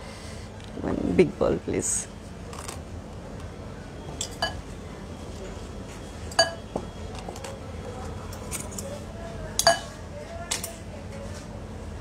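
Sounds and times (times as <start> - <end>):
bowls and dishes clinking: 4.2 - 4.7, 6.3 - 7.5, 9.6 - 10.0.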